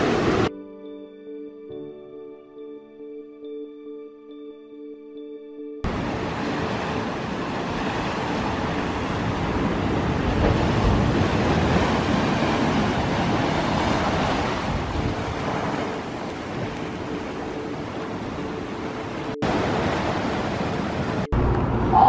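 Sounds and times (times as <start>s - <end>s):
ocean surf rushing: 0.0s - 0.5s, 5.8s - 22.0s.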